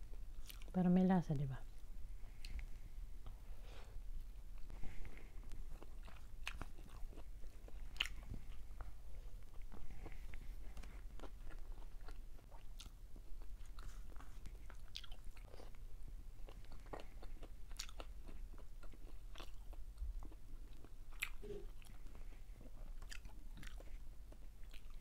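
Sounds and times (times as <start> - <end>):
person chewing: 0.3 - 0.7, 1.8 - 3.4, 4.2 - 25.0.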